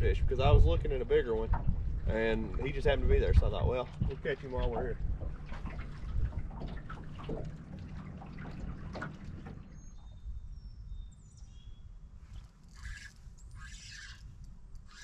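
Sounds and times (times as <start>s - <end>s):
low wind rumble: 0.0s - 15.0s
water lapping against boat hull: 0.3s - 11.6s.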